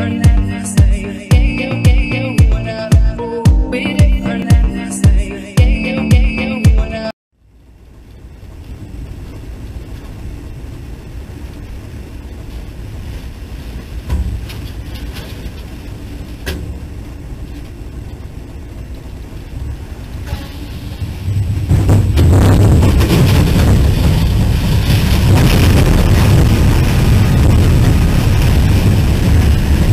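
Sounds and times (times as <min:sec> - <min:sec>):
electronic music: 0:00.0 - 0:07.1
diesel locomotive rumble: 0:07.7 - 0:29.9
sharp knocks: 0:14.1 - 0:14.6.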